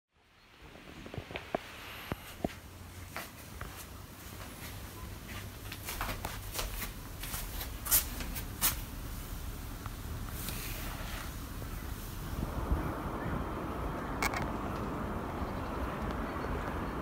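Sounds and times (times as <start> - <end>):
curtain fabric rustling: 0.8 - 12.5.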